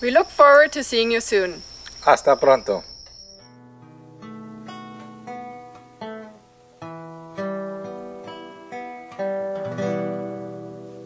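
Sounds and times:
acoustic guitar plucked chords: 0:02.5 - 0:11.0.

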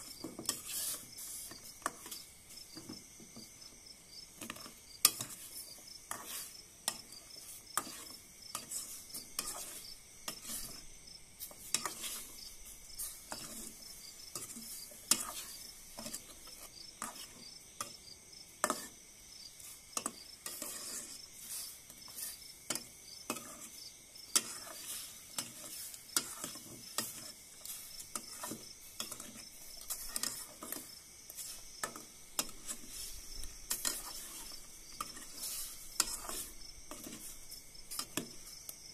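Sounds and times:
spatula scraping steel pot: 0:00.0 - 0:02.9, 0:04.4 - 0:18.0, 0:18.6 - 0:19.0, 0:19.7 - 0:38.5
crickets chirping: 0:00.0 - 0:38.9
food sizzling in pot: 0:00.0 - 0:38.9.

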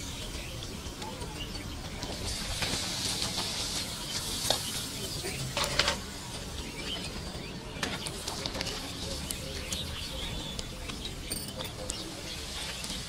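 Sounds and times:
oil sizzling in a wok: 0:02.3 - 0:07.3.

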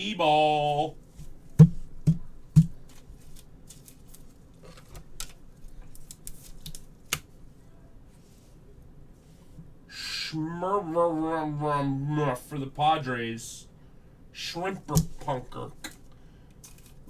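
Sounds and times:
card pack clicks and rustles: 0:02.8 - 0:07.2, 0:15.9 - 0:17.0.

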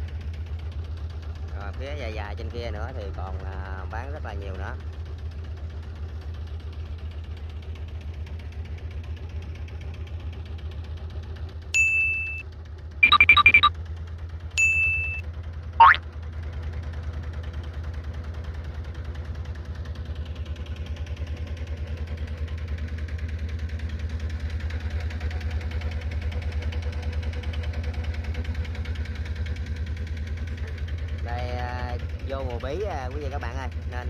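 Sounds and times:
boat engine running: 0:13.0 - 0:20.1, 0:21.6 - 0:34.0.

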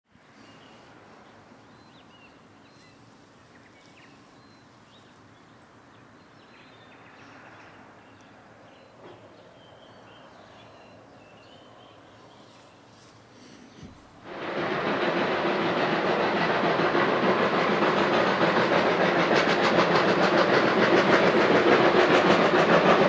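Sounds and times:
bird calls: 0:01.7 - 0:14.1.

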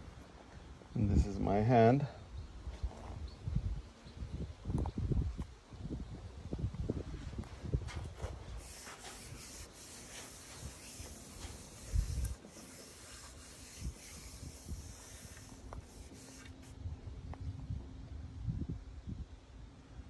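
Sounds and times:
hand rubbing on wood: 0:08.2 - 0:16.8.

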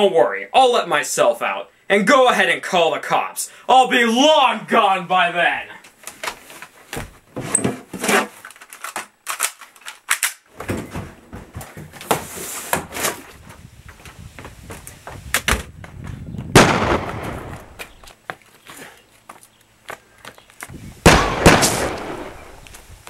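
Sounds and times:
loud gunshot: 0:16.6 - 0:17.8, 0:21.0 - 0:22.6.

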